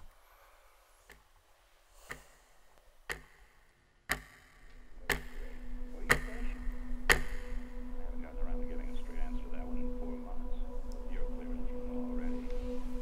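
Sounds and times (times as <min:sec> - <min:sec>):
wall clock ticking: 0:02.0 - 0:08.2
low steady drone: 0:04.7 - 0:13.0.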